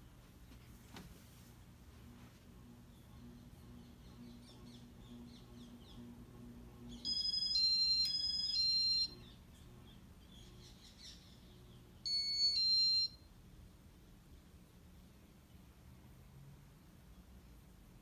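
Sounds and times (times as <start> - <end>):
faint low hum: 0.0 - 18.0
electronic beep tones: 7.1 - 9.2, 12.1 - 13.2.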